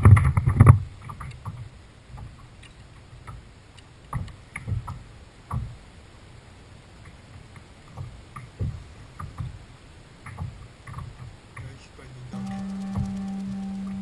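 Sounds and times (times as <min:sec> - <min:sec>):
light reel clicks: 0:12.3 - 0:14.0.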